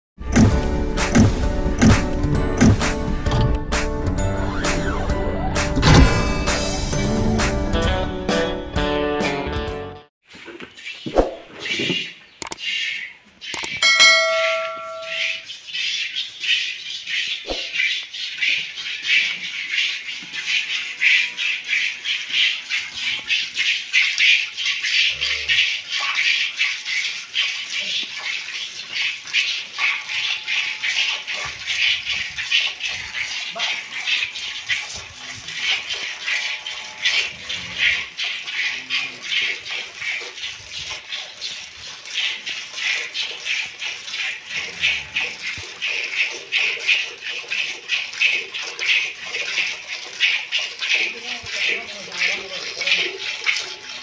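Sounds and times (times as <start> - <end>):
milk squirting into metal pail: 15.8 - 54.0.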